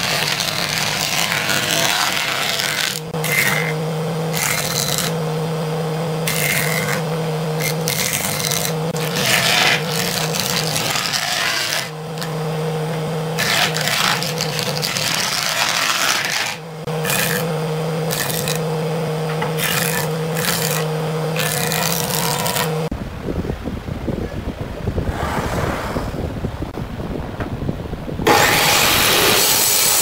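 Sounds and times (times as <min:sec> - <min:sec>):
jointer cutting wood: 0:00.0 - 0:22.9, 0:28.3 - 0:30.0
jointer motor humming: 0:00.0 - 0:22.9.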